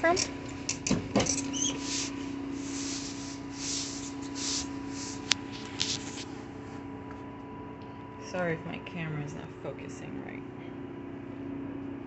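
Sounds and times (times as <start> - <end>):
steady low hum: 0.0 - 12.0
rustling and rubbing of handling: 1.3 - 6.9.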